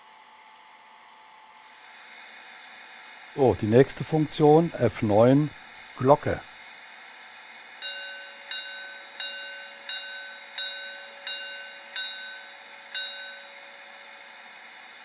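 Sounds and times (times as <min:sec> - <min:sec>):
locomotive bell ringing: 0:07.8 - 0:13.9.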